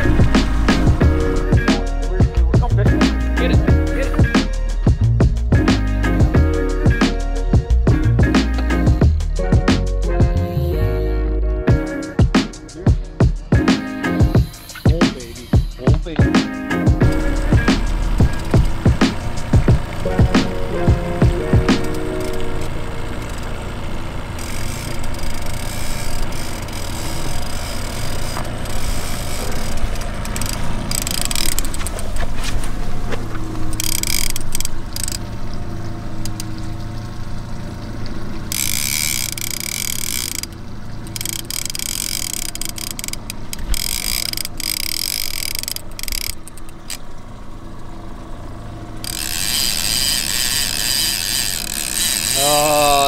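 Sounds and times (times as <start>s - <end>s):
boat motor hum: 0.0s - 53.0s
fishing reel drag clicking: 17.0s - 23.5s, 24.4s - 32.2s, 33.6s - 35.3s, 36.2s - 36.6s, 38.5s - 47.1s, 49.0s - 53.0s.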